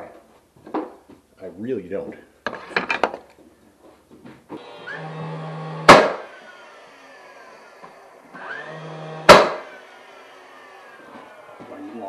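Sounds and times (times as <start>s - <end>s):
nail gun whine winding up: 4.6s - 11.6s
nail gun bang: 5.8s - 6.5s, 7.8s - 11.5s.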